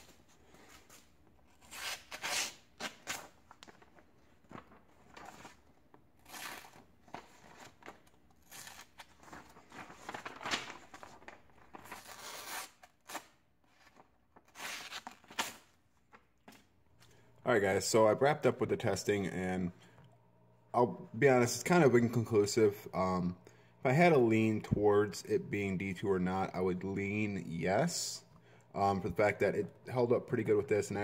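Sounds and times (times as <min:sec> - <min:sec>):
paper rustling and tearing: 0:00.6 - 0:15.7.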